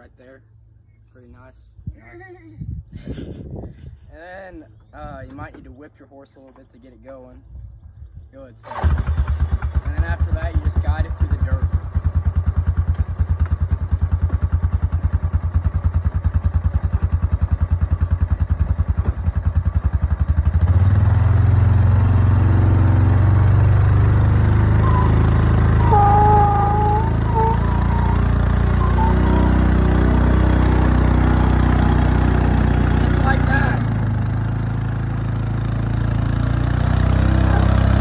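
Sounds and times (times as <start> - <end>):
small engine puttering: 8.6 - 11.7, 12.5 - 38.0.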